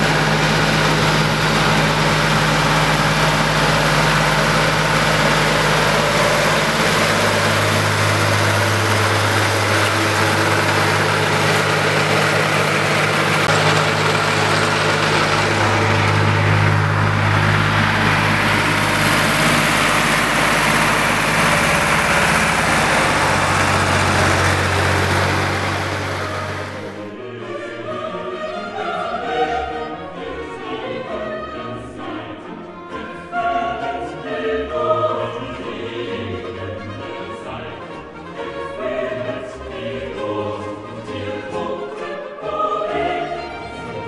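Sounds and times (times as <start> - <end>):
tractor engine humming: 0.0 - 27.2.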